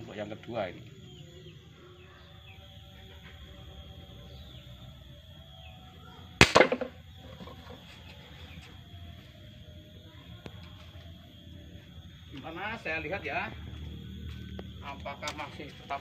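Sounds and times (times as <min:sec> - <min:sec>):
air rifle shot: 0:06.4 - 0:06.9.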